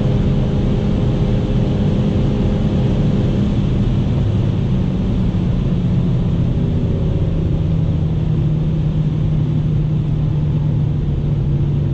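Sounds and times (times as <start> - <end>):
car engine drone: 0.0 - 11.9
wind and road noise: 0.0 - 11.9.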